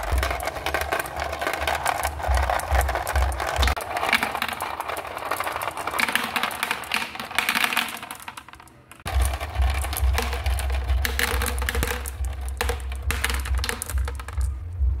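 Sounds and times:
marbles clicking in plastic dish: 0.0 - 14.6
marbles rolling and clattering: 0.0 - 14.8
low steady rumble: 9.1 - 15.0.

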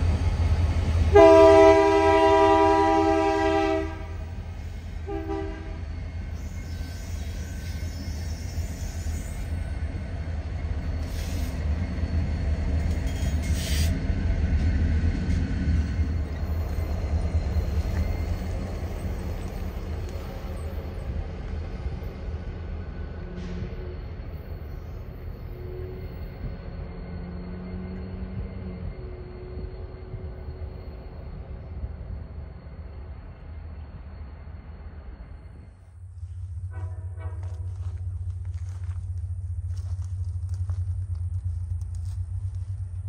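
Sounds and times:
locomotive engine rumble: 0.0 - 43.0
train horn blast: 1.1 - 6.0, 36.6 - 38.2
short hissing noises: 11.0 - 11.6, 13.2 - 14.0.

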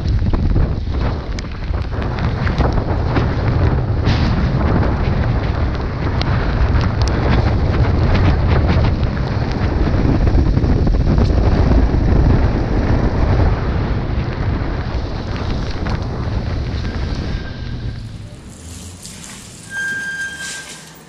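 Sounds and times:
wind buffeting microphone: 0.0 - 19.6
raindrops ticking: 14.2 - 19.7.

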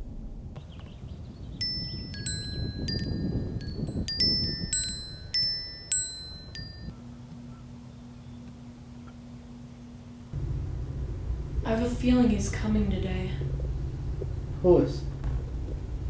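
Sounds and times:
low rumble: 0.0 - 5.3, 10.2 - 16.0
metal wind chimes ringing: 1.6 - 6.9.

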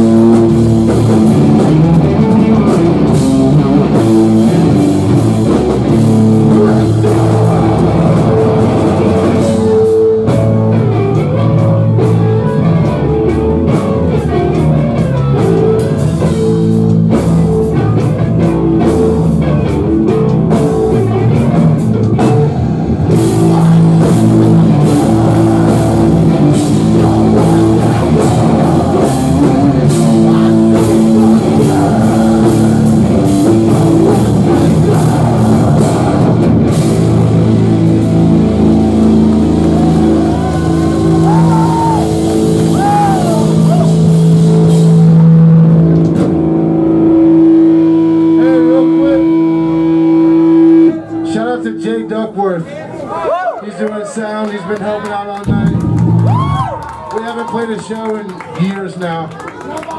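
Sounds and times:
live rock band playing: 0.0 - 53.0, 55.1 - 57.2.

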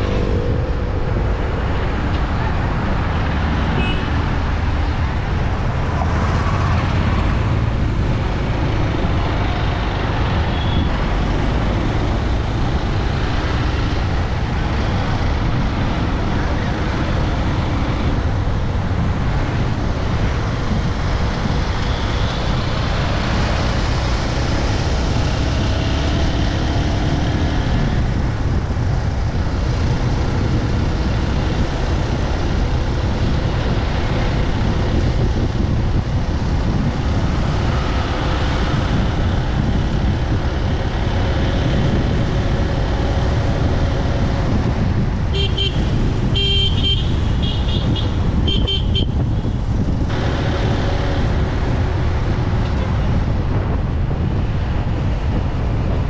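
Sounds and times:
road noise: 0.0 - 56.0
vehicles passing: 0.0 - 56.0
wind rushing: 0.0 - 56.0.

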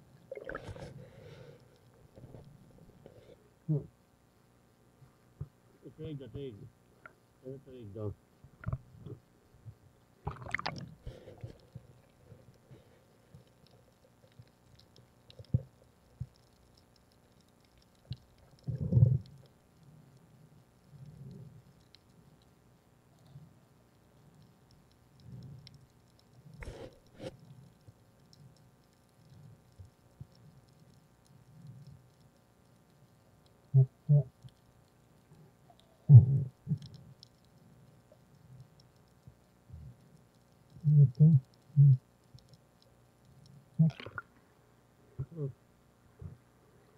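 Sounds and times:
underwater bubbling bursts: 0.2 - 1.4, 10.2 - 11.6, 43.8 - 44.4
underwater clicking and crackling: 0.2 - 3.3, 8.5 - 9.2, 10.0 - 44.6.

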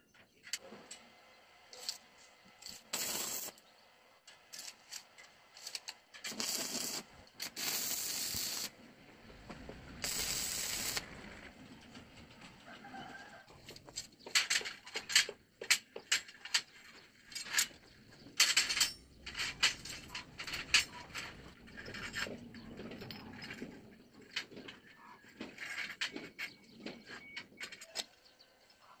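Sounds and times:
steel bars clinking together: 17.3 - 22.2.

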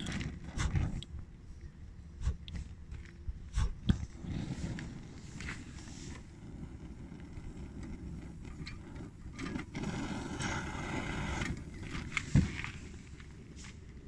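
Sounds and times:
stove flame rushing: 0.0 - 1.3, 2.2 - 14.0.

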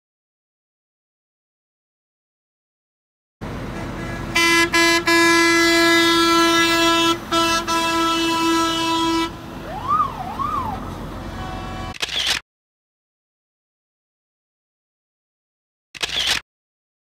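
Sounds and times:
truck engine running: 3.4 - 11.9
fire truck horn blasts: 3.6 - 9.6, 11.0 - 12.0
siren wailing: 9.6 - 11.0.

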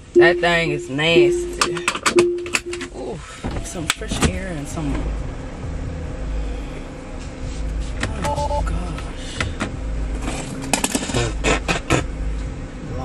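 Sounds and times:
short beeping tone: 0.0 - 3.2
car rumbling: 0.0 - 13.0.

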